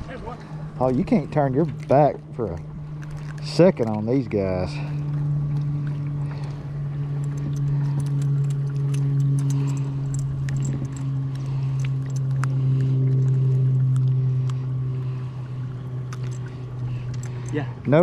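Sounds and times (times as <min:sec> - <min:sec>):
small motor humming: 0:00.3 - 0:18.0
light clicks and rattles: 0:07.2 - 0:13.4, 0:16.1 - 0:17.7.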